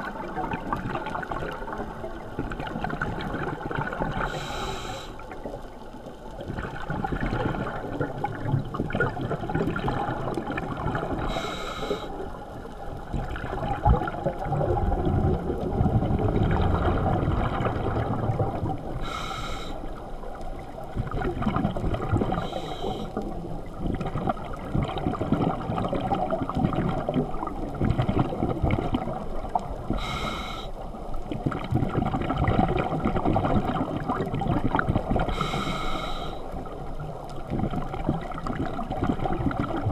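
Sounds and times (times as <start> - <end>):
regulator hissing inhales: 4.2 - 5.2, 11.3 - 12.2, 19.0 - 19.9, 22.4 - 23.2, 30.0 - 30.8, 35.3 - 36.5
bubbling exhaled air: 6.4 - 12.2, 13.2 - 19.9, 20.9 - 30.7, 31.3 - 39.9.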